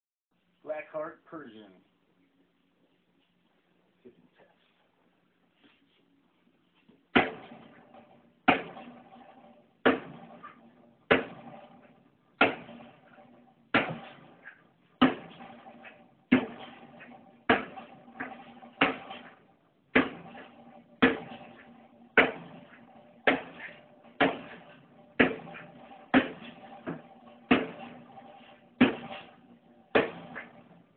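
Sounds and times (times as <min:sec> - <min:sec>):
knife stabbing metal tank: 0:22.2 - 0:29.3.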